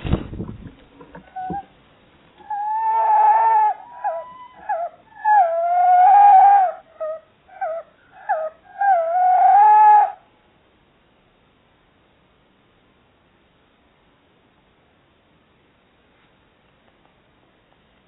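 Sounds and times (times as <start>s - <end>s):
owls calling: 1.2s - 1.7s, 2.4s - 10.2s.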